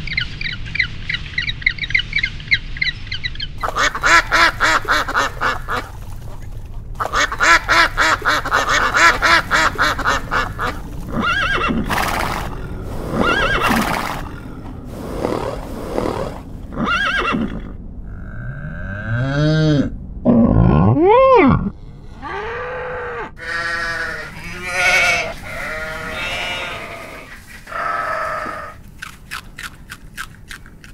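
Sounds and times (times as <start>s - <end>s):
ducks quacking: 3.6s - 14.4s, 23.4s - 28.8s
horse neighing: 8.6s - 17.8s, 20.6s - 28.8s
cow mooing: 21.5s - 28.8s.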